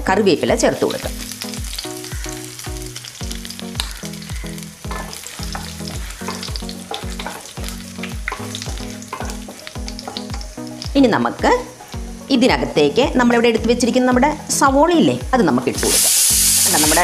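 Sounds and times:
spices sizzling in hot oil: 0:00.0 - 0:17.0
background music with low beat: 0:00.5 - 0:17.0
wooden spatula stirring: 0:04.9 - 0:07.6.

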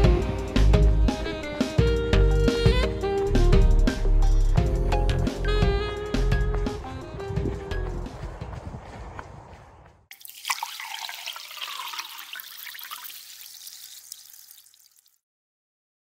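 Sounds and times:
background music: 0:00.0 - 0:08.7.

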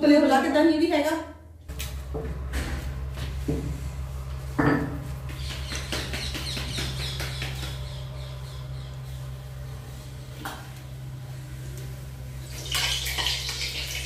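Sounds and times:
low hum: 0:01.4 - 0:14.0
palms patting dough: 0:03.0 - 0:09.1.

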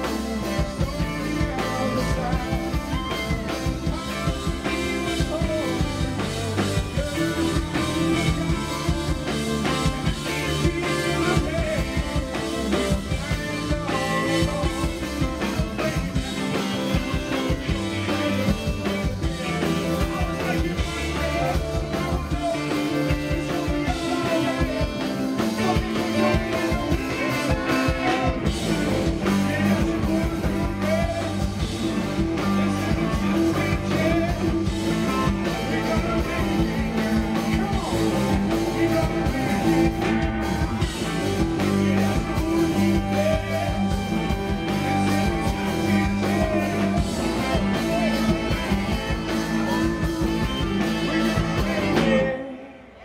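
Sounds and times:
drums: 0:00.0 - 0:53.0
electric guitar: 0:00.0 - 0:53.0
keyboards: 0:00.0 - 0:53.0
person singing: 0:00.0 - 0:53.0
saxophone: 0:30.1 - 0:53.0.

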